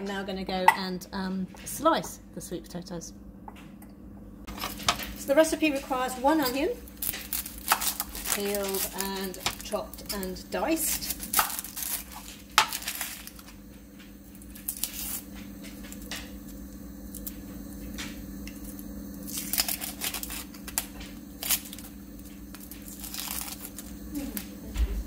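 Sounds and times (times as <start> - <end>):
steady low hum: 0.0 - 25.0
onion skin crackling and tearing: 6.8 - 13.6, 14.3 - 15.3, 17.0 - 17.4, 18.4 - 24.5.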